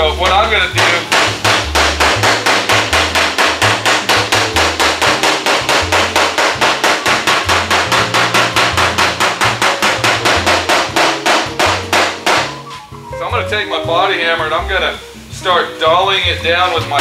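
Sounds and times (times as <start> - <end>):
hammer tapping sheet metal: 0.1 - 12.6.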